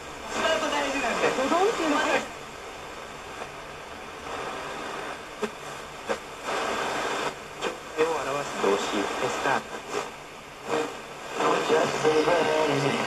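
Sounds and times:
radio static hiss: 0.0 - 13.0
sharp radio crackles: 4.2 - 13.0.

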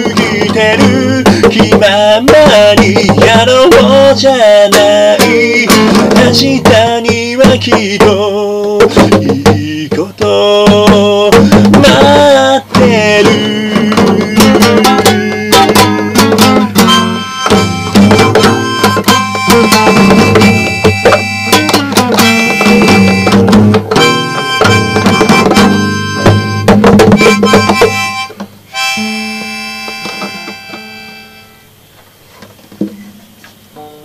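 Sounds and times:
strummed guitar: 0.0 - 31.8
harmonica playing: 14.4 - 31.8.

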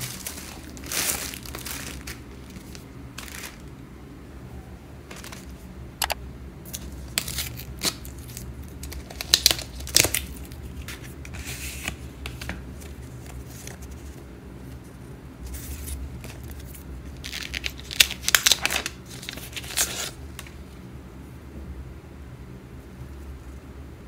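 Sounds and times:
paper packaging rustling: 0.0 - 3.7, 5.1 - 14.8, 15.5 - 20.6.

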